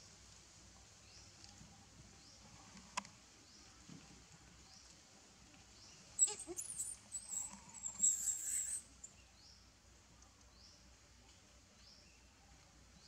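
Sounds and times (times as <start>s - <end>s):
baby monkey squealing: 6.2s - 8.8s.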